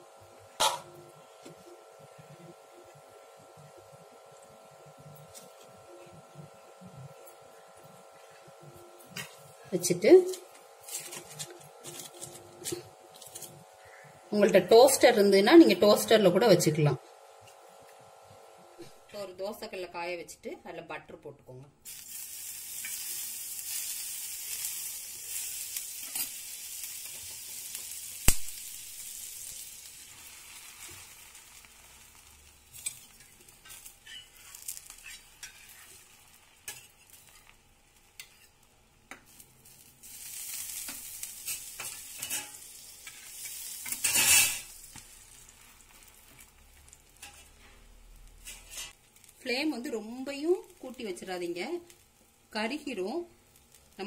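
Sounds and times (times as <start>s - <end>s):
butter sizzling on a griddle: 0.0s - 14.0s, 21.8s - 54.0s
utensils scraping and tapping: 9.1s - 9.5s, 10.3s - 13.6s, 32.7s - 37.5s, 38.2s - 39.4s, 40.8s - 45.0s, 48.4s - 49.0s.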